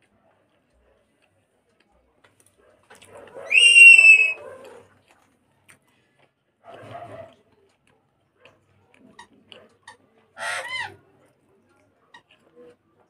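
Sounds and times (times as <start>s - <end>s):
high-pitched animal call: 3.5s - 4.4s.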